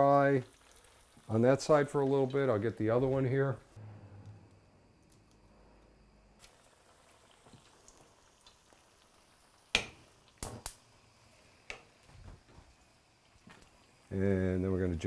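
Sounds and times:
dough sizzling in hot oil: 0.0s - 3.8s, 6.0s - 15.0s
sharp pops in oil: 9.7s - 10.8s.

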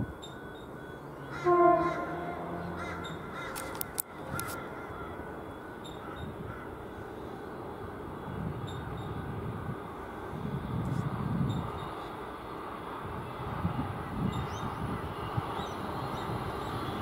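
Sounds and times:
crow cawing: 1.3s - 5.4s, 6.0s - 6.8s.

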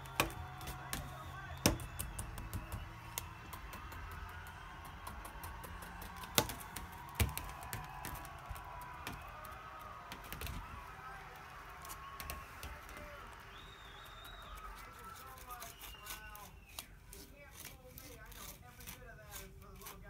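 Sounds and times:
faint background music: 14.0s - 20.0s.

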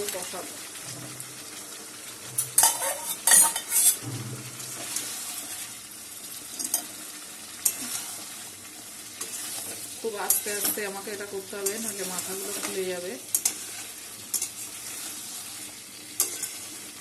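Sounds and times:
food sizzling: 0.0s - 17.0s
spatula clattering and scraping: 2.4s - 5.7s, 9.2s - 11.0s, 11.6s - 16.8s.

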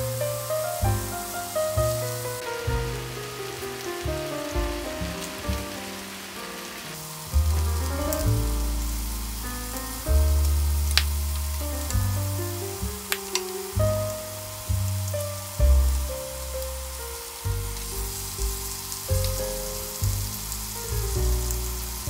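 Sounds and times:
background music: 0.0s - 22.0s
meat sizzling on grill plate: 5.0s - 11.5s, 12.8s - 22.0s.

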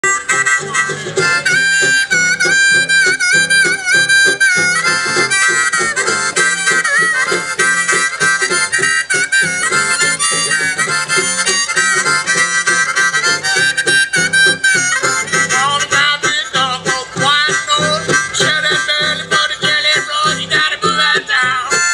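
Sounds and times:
plucked banjo: 0.0s - 21.9s
reedy wind instrument melody: 0.0s - 21.9s.

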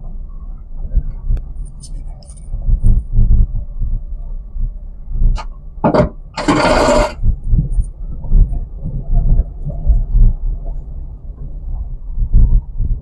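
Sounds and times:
loud scrape under car: 6.4s - 7.2s.

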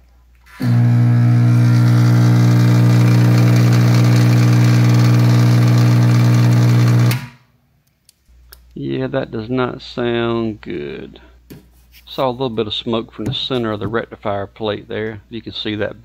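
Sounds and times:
battery charger humming: 0.5s - 7.3s.

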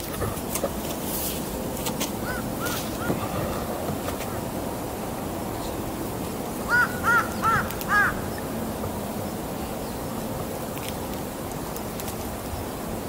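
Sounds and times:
steady background hiss: 0.0s - 13.0s
crow cawing: 2.2s - 3.2s, 6.7s - 8.3s.

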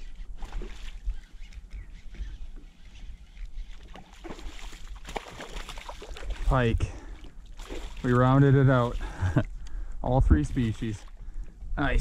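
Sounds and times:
fish thrashing and splashing: 3.5s - 9.2s.

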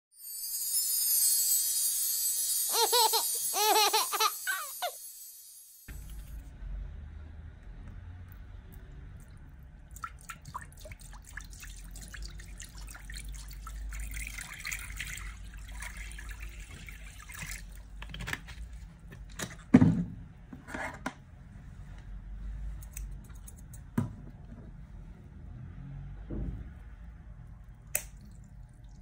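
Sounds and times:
water pouring into glass dish: 9.1s - 18.0s
plastic bottle handled and capped: 18.0s - 20.0s.

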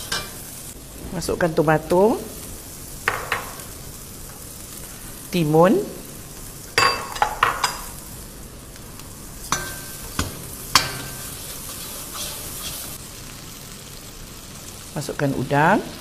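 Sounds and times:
oil sizzling: 0.0s - 16.0s
ladle scraping a pot: 9.5s - 13.0s.

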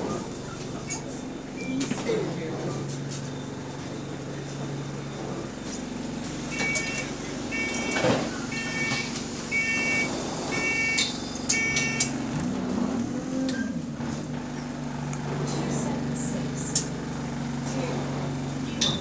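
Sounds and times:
bus diesel engine idling: 0.0s - 19.0s
electronic warning beep: 6.5s - 12.1s
clunk: 18.8s - 19.0s.

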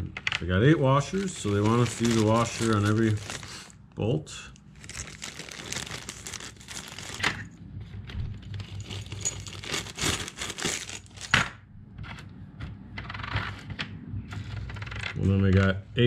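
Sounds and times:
plastic bag crinkling: 0.8s - 3.8s, 4.6s - 7.5s, 8.5s - 11.3s.

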